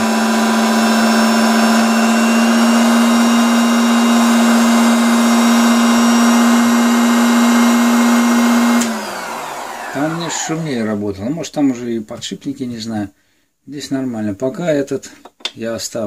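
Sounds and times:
circular saw running: 0.0s - 11.0s.

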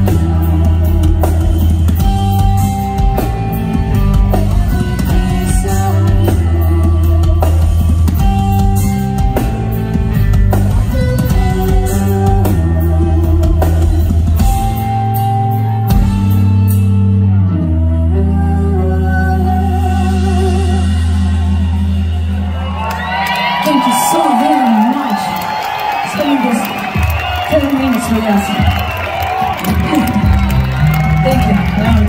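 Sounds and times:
live metal band playing: 0.0s - 25.2s, 26.1s - 32.0s
person singing: 4.6s - 8.3s, 17.6s - 21.9s.

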